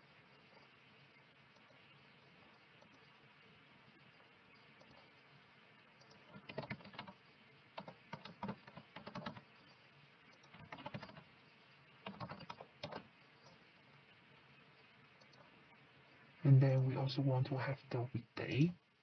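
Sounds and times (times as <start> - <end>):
typing on keyboard: 6.0 - 7.2, 7.8 - 9.5, 10.4 - 11.3, 12.0 - 13.6.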